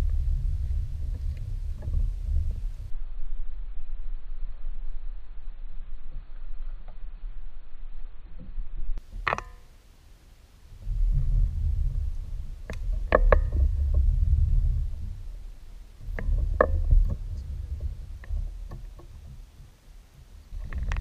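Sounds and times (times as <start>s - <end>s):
kayak low rumble: 0.0s - 3.0s, 3.9s - 21.0s
gear knocking against hull: 10.8s - 21.0s.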